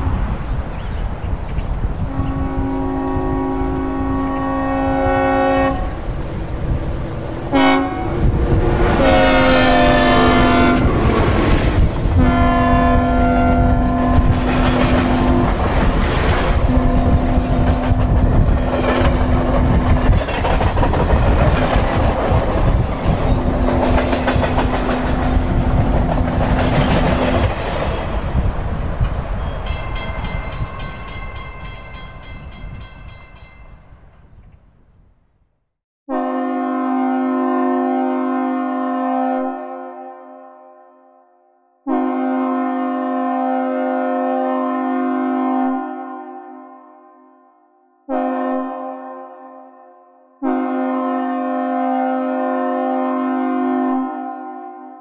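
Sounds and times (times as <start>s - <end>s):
train rumble and clickety-clack: 0.0s - 34.2s
train horn blasts: 2.0s - 6.8s, 7.4s - 11.0s, 12.2s - 15.7s, 16.6s - 19.5s, 36.1s - 55.0s.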